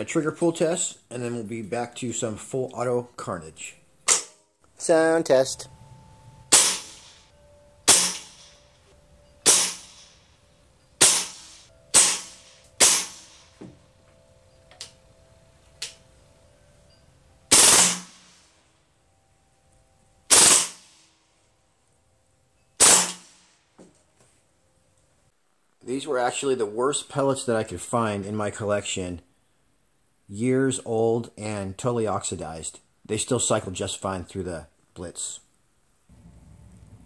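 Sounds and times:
air rifle single shots: 6.5 - 7.1, 7.9 - 8.5, 9.4 - 10.0, 11.0 - 13.4, 17.5 - 18.2, 20.3 - 20.9, 22.8 - 23.3
air rifle automatic bursts: 11.0 - 13.3, 17.5 - 18.1, 20.3 - 20.8.

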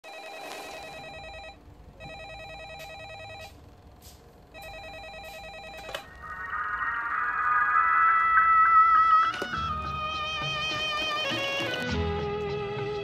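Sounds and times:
telephone ringing with warbling trill: 4.6 - 10.6.

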